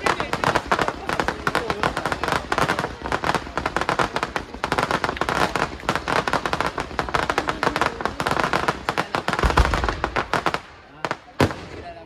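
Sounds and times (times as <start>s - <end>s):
fireworks crackling pops: 0.0s - 12.0s.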